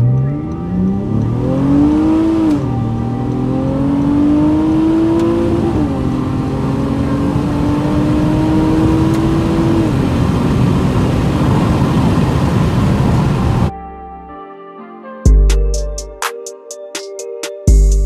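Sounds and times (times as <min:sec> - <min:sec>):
car engine accelerating with upshifts: 0:00.0 - 0:13.7.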